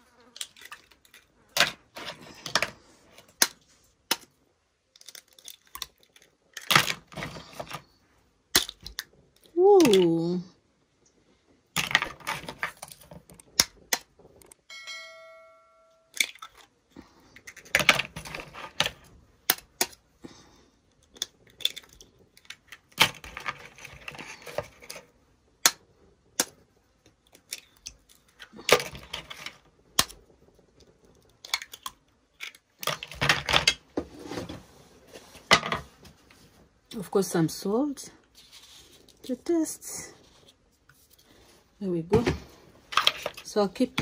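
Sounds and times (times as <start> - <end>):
eggs cracking against plastic: 0.3 - 10.2, 11.0 - 14.6, 16.1 - 33.9.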